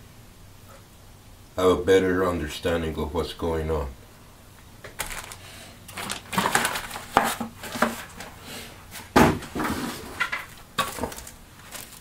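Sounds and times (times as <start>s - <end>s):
plastic wrapping rustling: 4.8s - 12.0s.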